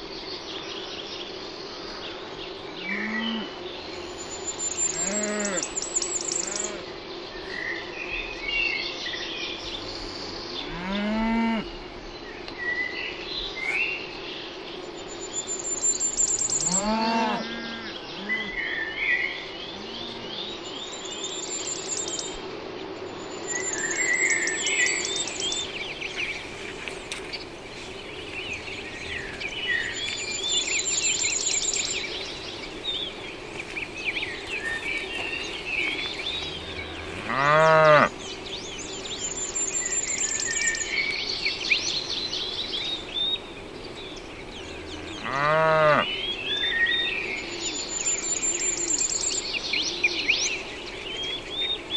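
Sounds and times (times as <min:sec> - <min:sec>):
small birds singing and chirping: 0:00.0 - 0:51.9
steady low hum: 0:17.7 - 0:45.3
cattle mooing: 0:36.4 - 0:38.1, 0:44.8 - 0:46.1.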